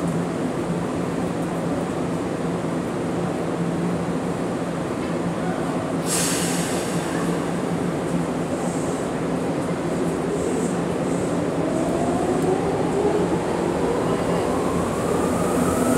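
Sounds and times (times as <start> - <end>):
air brakes hissing: 6.0 - 7.4
electric train humming: 10.2 - 15.9.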